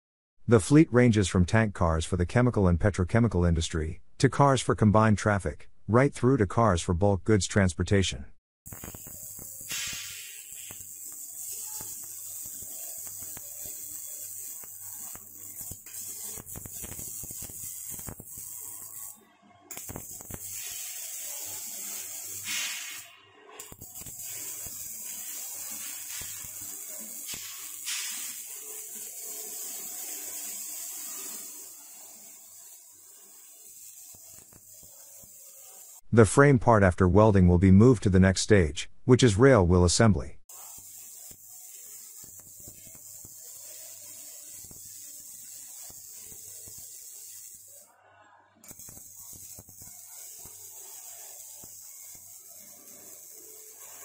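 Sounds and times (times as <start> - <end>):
arc welding hiss and crackle: 8.6 - 36.0, 40.5 - 48.0, 48.6 - 54.0.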